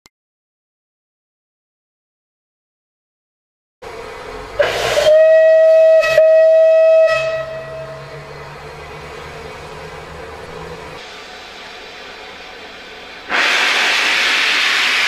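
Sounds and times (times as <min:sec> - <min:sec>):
low engine hum: 0:03.8 - 0:13.3
steam whistle blasts: 0:04.5 - 0:08.3, 0:13.3 - 0:15.0
short steam hiss: 0:04.6 - 0:06.2, 0:11.0 - 0:15.0.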